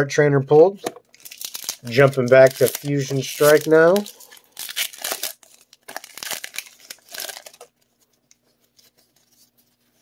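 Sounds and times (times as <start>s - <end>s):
foil wrapper tearing and crinkling: 1.2s - 7.8s.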